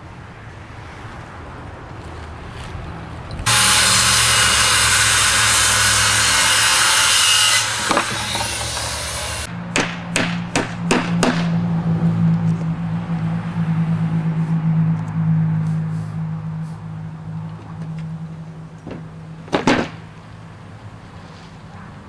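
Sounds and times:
power saw cutting wood: 3.4s - 9.5s
sharp knocks: 7.7s - 9.0s, 9.7s - 11.6s, 18.9s - 20.0s.

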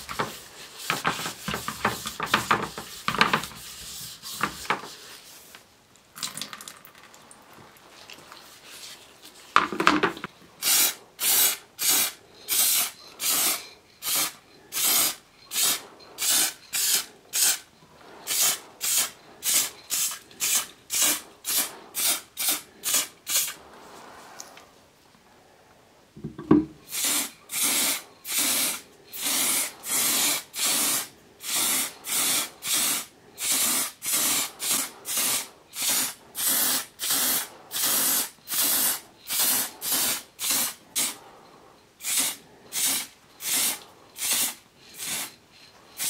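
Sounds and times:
rubbing: 0.0s - 5.6s
object clattering: 9.5s - 10.3s
spray can hissing: 10.6s - 17.7s, 18.3s - 23.6s, 26.9s - 41.2s, 42.0s - 45.3s.

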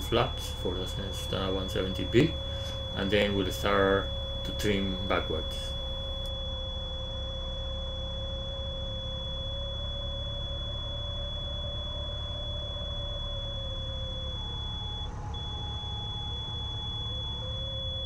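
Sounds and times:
thin high tone: 0.0s - 6.3s
humming mid tone: 0.0s - 18.0s.

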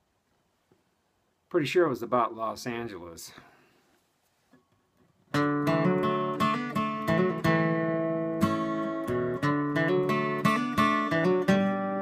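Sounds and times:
acoustic guitar strumming chords: 5.3s - 12.0s.

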